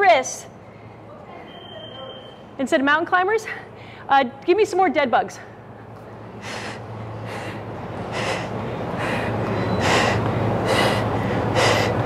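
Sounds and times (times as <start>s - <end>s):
woman breathing hard: 6.4s - 12.0s.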